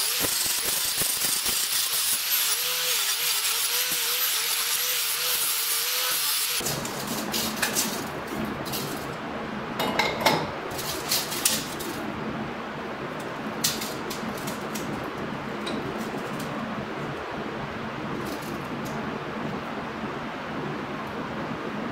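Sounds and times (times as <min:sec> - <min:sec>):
angle grinder cutting steel: 0:00.0 - 0:07.5
steady hiss: 0:00.0 - 0:09.2.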